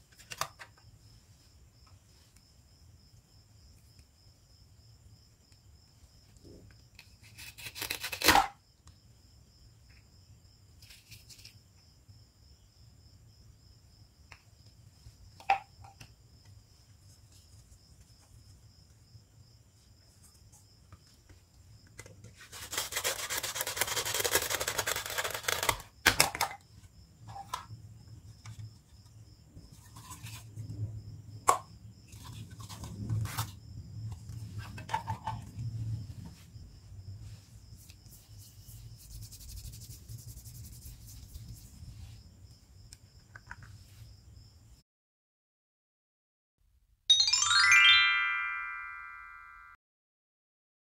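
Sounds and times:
velcro tearing apart: 0:07.2 - 0:08.5, 0:22.6 - 0:25.9.

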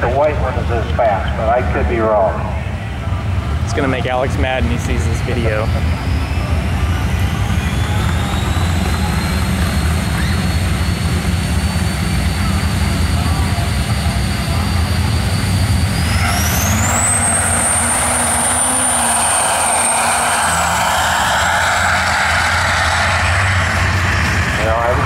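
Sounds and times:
pickup engine rumbling: 0:00.0 - 0:25.0
high turbo whistle: 0:06.0 - 0:25.0.

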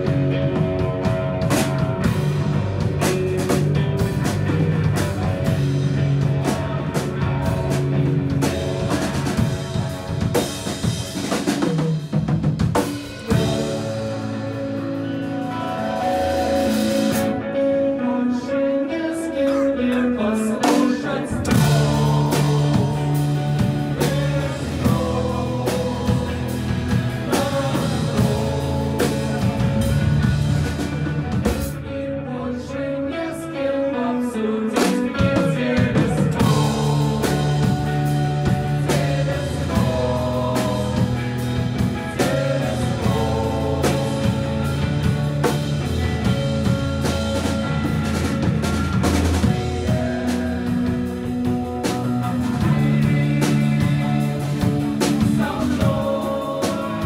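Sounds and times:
drum kit: 0:00.0 - 0:17.8, 0:19.4 - 0:32.0, 0:34.8 - 0:57.0
electric guitar: 0:00.0 - 0:57.0
man singing into microphone: 0:17.5 - 0:29.7, 0:32.1 - 0:37.9, 0:52.2 - 0:57.0.

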